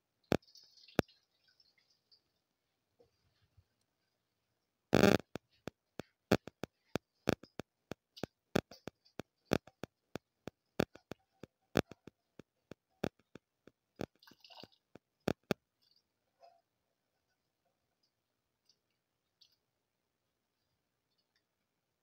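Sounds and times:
broth boiling with bubbles popping: 0.2s - 4.0s, 5.0s - 16.2s.

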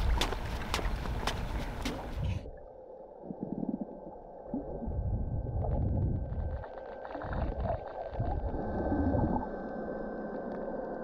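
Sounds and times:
muffled underwater rumble: 2.2s - 11.0s.

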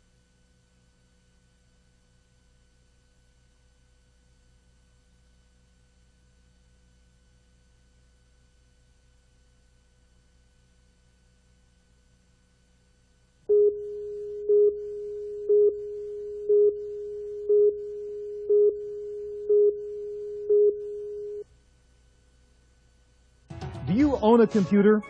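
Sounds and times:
countdown beeps: 13.5s - 21.4s
steady pure tone: 13.5s - 21.5s.

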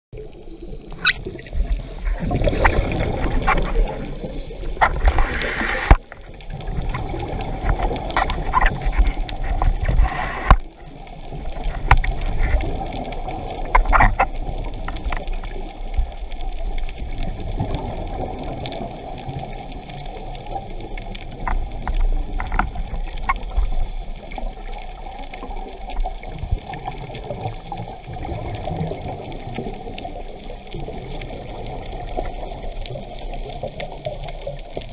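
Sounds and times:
water moving around camera: 0.1s - 34.9s
air bubbles rushing underwater: 0.2s - 34.9s
scuba regulator breathing: 4.0s - 6.0s, 9.8s - 10.6s.

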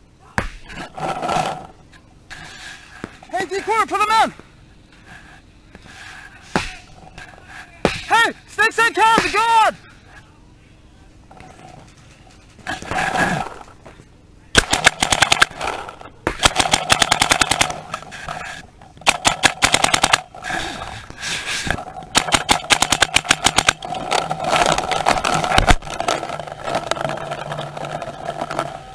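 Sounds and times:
paintball markers firing rapidly: 14.5s - 18.2s, 19.0s - 20.4s, 21.7s - 28.6s.

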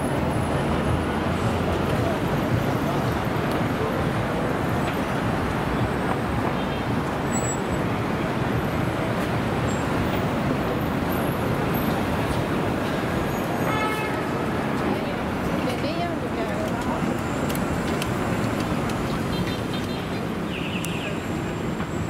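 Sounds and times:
street traffic rumble: 0.0s - 22.0s.

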